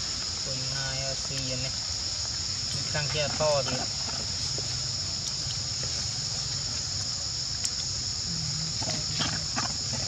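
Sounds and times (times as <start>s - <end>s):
insects droning: 0.0s - 10.0s
faint ticks: 4.1s - 5.8s, 7.0s - 8.0s.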